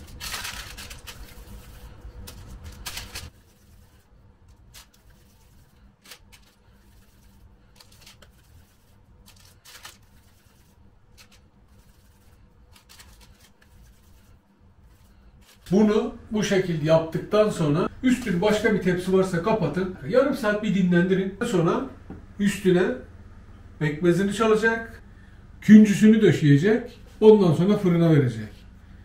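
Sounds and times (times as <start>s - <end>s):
parchment paper rustling: 0.0s - 16.0s.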